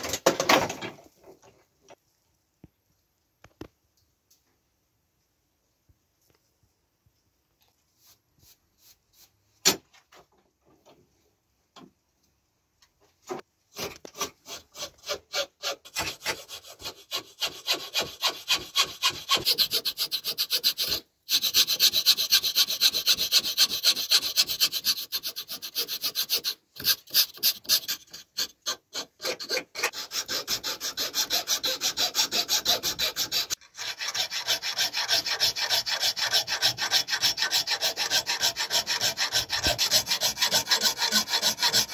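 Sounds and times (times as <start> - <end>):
metal file rasping on wood: 13.7 - 41.9.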